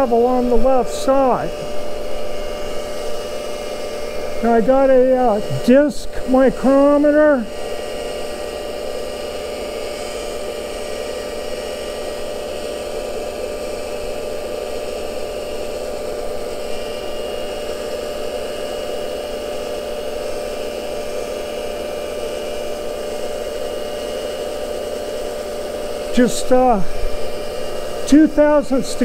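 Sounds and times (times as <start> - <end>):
grinder wheel spinning: 0.0 - 29.0.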